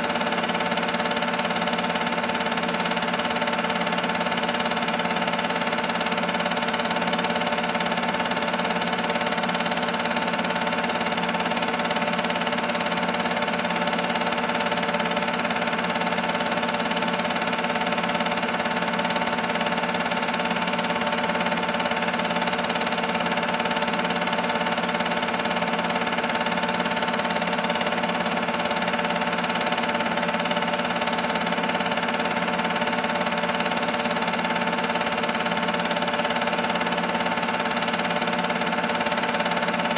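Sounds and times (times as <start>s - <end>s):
projector motor hum: 0.0s - 39.9s.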